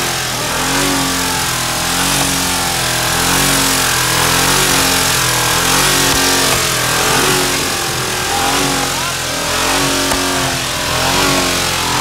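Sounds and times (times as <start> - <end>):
pickup engine revving: 0.0 - 12.0.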